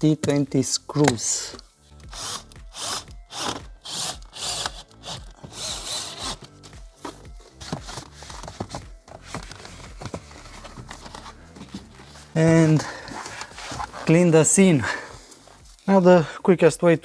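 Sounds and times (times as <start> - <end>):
cordless drill driving screws: 2.1 - 6.5
cloth wiping plastic: 7.5 - 14.4.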